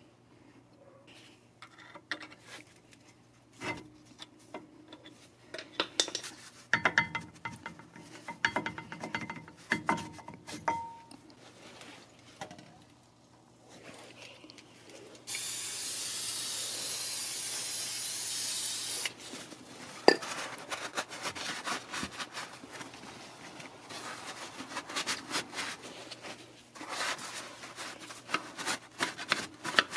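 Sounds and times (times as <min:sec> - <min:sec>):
aerosol spray hiss: 0:15.3 - 0:19.2.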